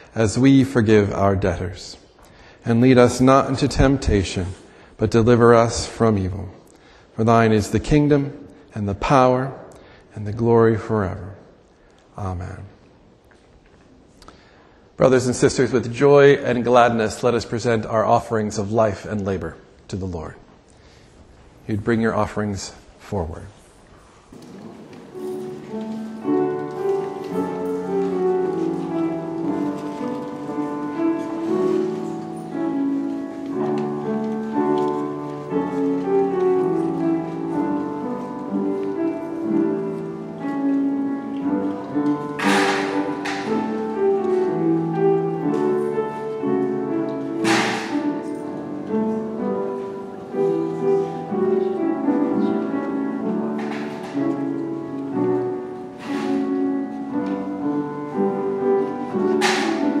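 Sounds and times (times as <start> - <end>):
slow keyboard music: 24.0 - 60.0
sharp knocks: 42.4 - 43.6, 47.4 - 48.1, 59.4 - 59.9.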